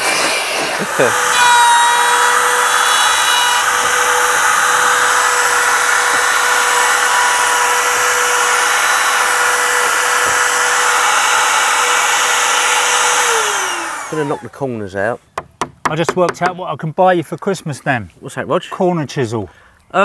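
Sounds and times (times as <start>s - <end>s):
router whining while cutting wood: 0.0s - 14.6s.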